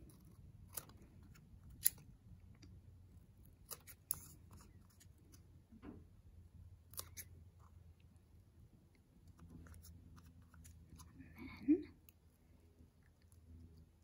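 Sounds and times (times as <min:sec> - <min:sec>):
scissors snipping foam: 0:00.0 - 0:02.1, 0:03.5 - 0:05.4, 0:06.9 - 0:07.3.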